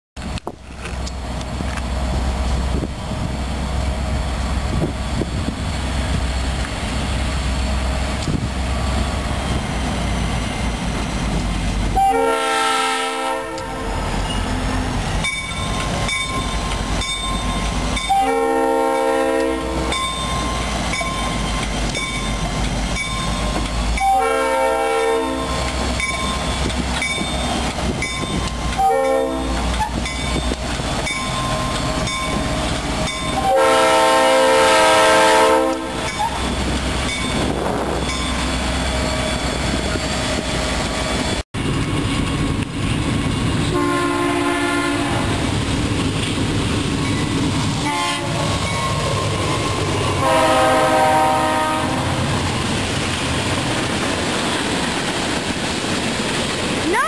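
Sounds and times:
locomotive horn blasts: 12.0s - 14.9s, 18.1s - 20.0s, 24.0s - 25.6s, 28.8s - 29.9s, 33.4s - 36.4s, 43.7s - 45.4s, 47.8s - 48.6s, 50.2s - 52.3s.

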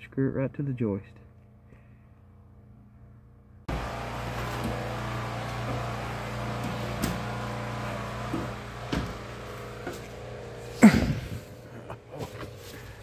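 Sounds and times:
motor running with low hum: 3.7s - 13.0s.

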